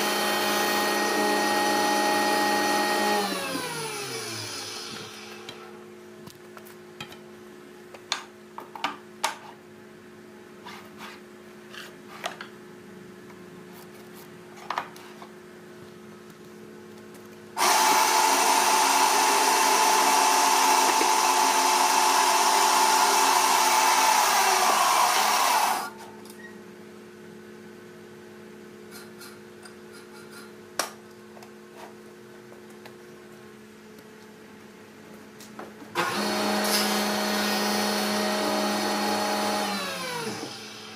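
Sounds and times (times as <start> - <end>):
band saw cutting wood: 17.6 - 25.9, 36.0 - 40.9
louder machine starting up: 17.6 - 25.9.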